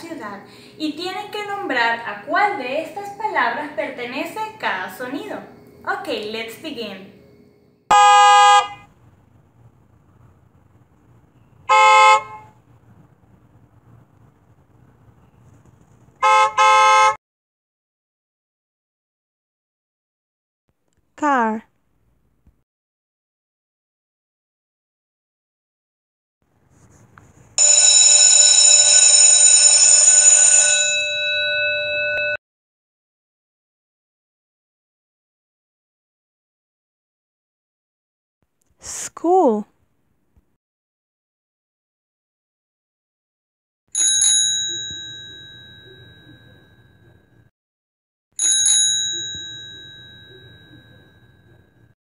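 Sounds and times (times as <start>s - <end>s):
electric school bell ringing: 27.6s - 32.4s, 44.0s - 47.5s, 48.4s - 52.0s.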